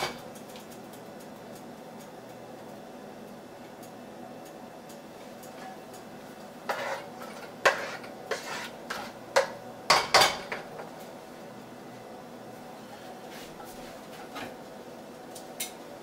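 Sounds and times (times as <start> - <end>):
dishes and utensils clattering: 6.7 - 10.9.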